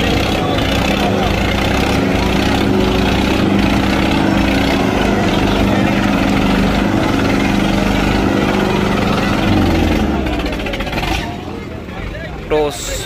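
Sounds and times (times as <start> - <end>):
tractor engine labouring: 0.0 - 13.0.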